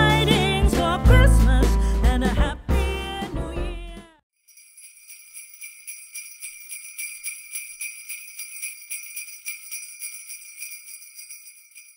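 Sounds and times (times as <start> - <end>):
jingle bells shaken: 4.4 - 11.9.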